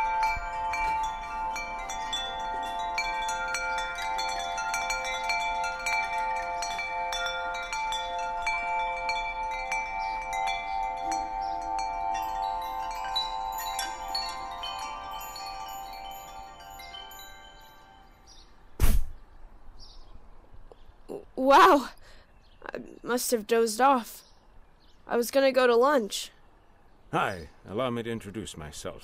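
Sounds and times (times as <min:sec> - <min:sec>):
wind chimes tinkling: 0:00.0 - 0:18.6.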